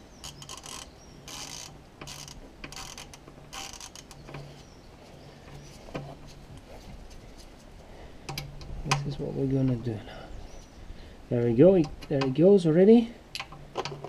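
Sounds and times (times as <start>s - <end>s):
ratchet wrench clicking: 0.2s - 4.4s.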